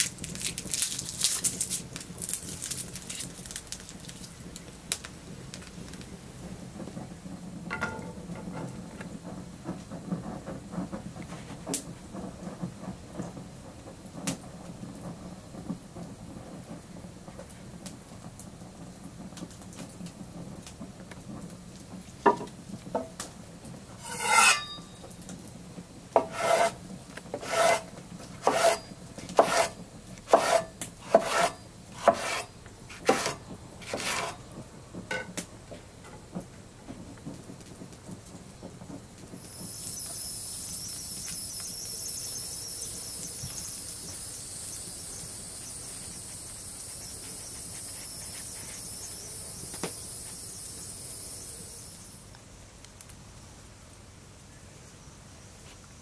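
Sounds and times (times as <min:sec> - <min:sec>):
short scrape: 0:24.0 - 0:24.9, 0:26.2 - 0:26.8, 0:27.4 - 0:34.4
knife chopping on wooden board: 0:26.2 - 0:26.8, 0:28.4 - 0:28.8, 0:29.4 - 0:29.7, 0:30.3 - 0:34.3.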